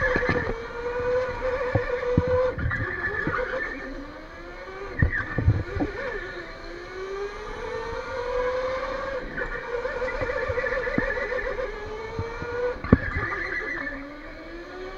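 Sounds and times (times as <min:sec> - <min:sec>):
electric go-kart motor whine: 0:00.0 - 0:14.9
tyres squealing on concrete: 0:12.9 - 0:14.1.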